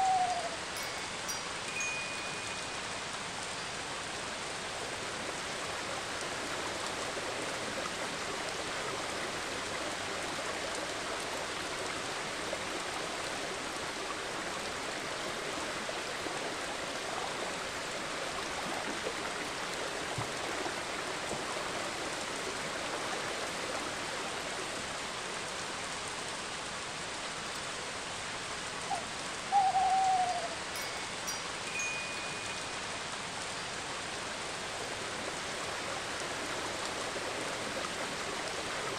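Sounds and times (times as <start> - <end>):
owl hoot: 0.0 - 0.6, 28.9 - 30.6
steady rain: 0.0 - 38.9.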